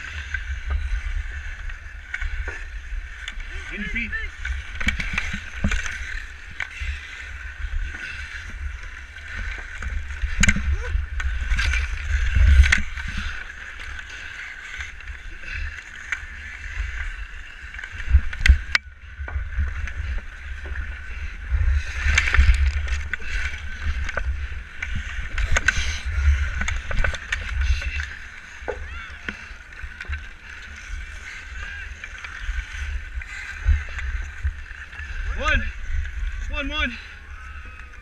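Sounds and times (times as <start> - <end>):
wind on microphone: 0.0 - 13.6
ice skates scraping: 0.0 - 18.6, 19.6 - 35.2.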